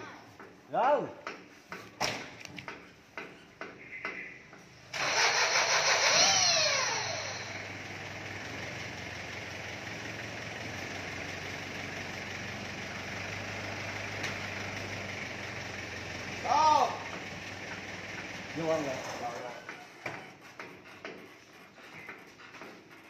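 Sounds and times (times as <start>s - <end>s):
truck engine starting and idling: 4.1s - 20.0s.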